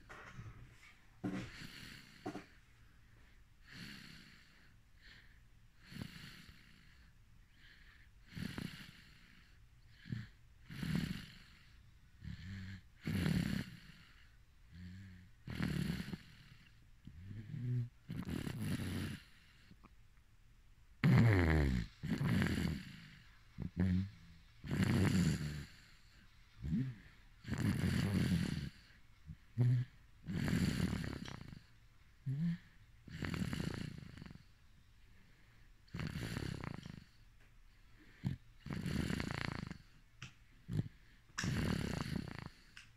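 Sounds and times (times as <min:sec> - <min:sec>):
person snoring: 0:05.8 - 0:19.8, 0:21.0 - 0:34.5, 0:35.9 - 0:37.2, 0:38.1 - 0:40.0, 0:40.7 - 0:42.8.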